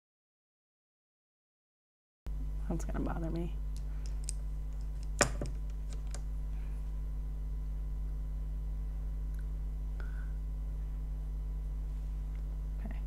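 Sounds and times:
low electrical hum: 2.3 - 13.0
makeup tools clicking: 3.8 - 6.2.

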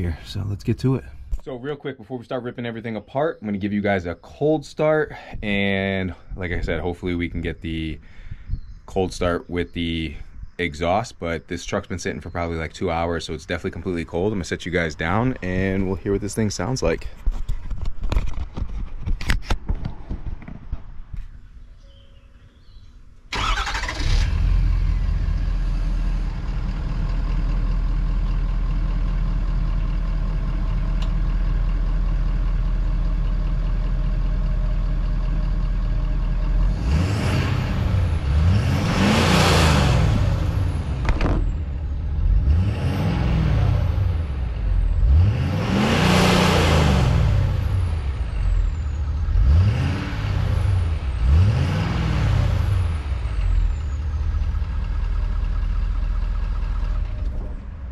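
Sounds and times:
diesel engine idling and revving: 23.3 - 57.9.

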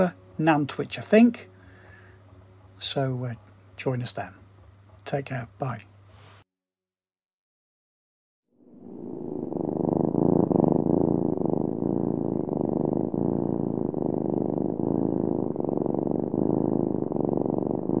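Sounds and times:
cat purring: 8.6 - 18.0.

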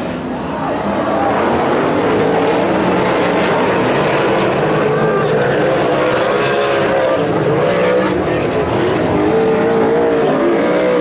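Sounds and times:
race car engines passing: 0.0 - 11.0.

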